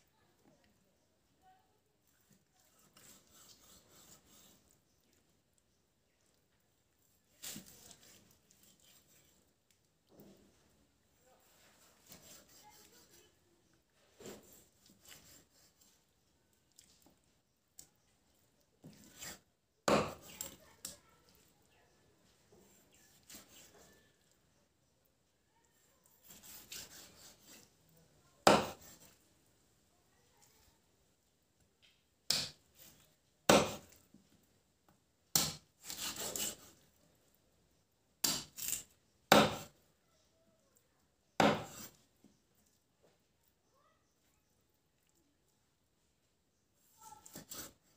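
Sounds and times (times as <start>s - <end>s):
knife rasping through meat: 2.3s - 4.8s, 7.4s - 9.4s, 11.4s - 13.4s, 14.2s - 16.0s, 22.7s - 24.1s, 26.1s - 27.8s, 28.4s - 29.2s, 35.4s - 36.8s, 38.2s - 38.9s, 47.2s - 47.9s
knife chopping on wooden block: 19.2s - 20.6s, 26.2s - 27.6s, 28.4s - 29.0s, 32.3s - 32.6s, 33.5s - 33.9s, 35.3s - 36.7s, 38.2s - 39.8s, 41.4s - 42.0s.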